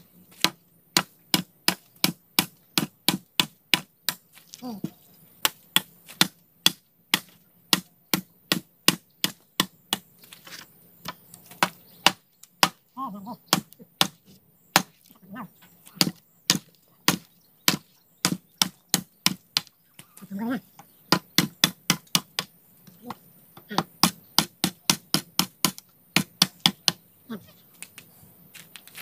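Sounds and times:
hand tool striking wood: 0.3s - 12.8s, 13.5s - 15.2s, 20.8s - 27.0s.

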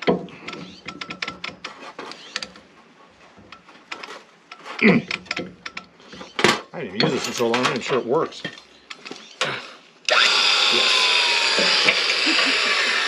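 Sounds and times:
metal tools clinking: 4.0s - 9.2s.

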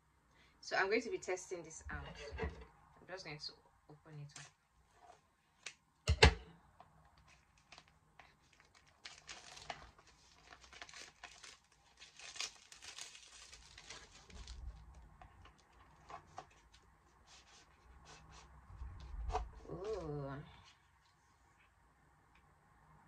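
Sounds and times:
packaging crinkling: 7.3s - 18.2s.

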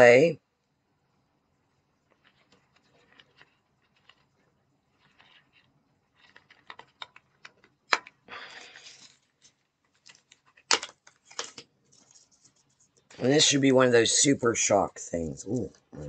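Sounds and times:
packaging rustling: 2.1s - 12.9s
packaging clicks and taps: 5.0s - 12.1s.

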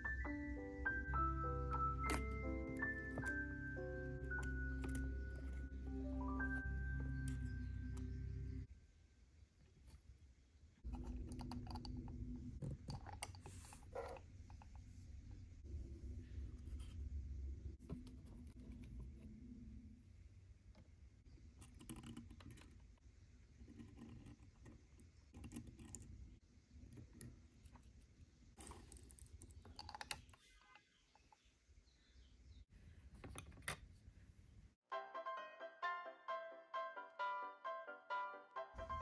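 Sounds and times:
low room rumble: 10.1s - 21.6s
miniatures clicking and tapping: 10.8s - 13.4s.

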